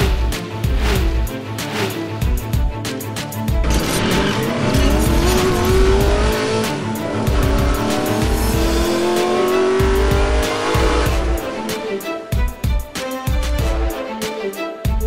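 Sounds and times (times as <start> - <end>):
racing car engine revving: 0.0 - 2.5, 3.6 - 11.9
music with pulsing bass beat: 0.0 - 15.0.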